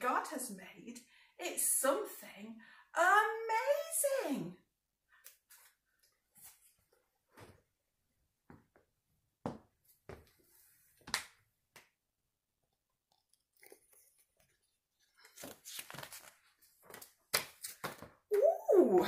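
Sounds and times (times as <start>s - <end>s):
picture book pages crinkling: 13.2s - 18.1s
paper rustling: 13.6s - 18.1s.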